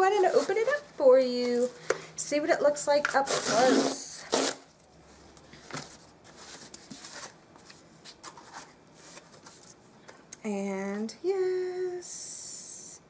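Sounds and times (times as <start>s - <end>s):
cardboard rustling and crinkling: 0.0s - 1.8s, 5.5s - 9.8s
cardboard tear strip ripping: 3.3s - 4.6s.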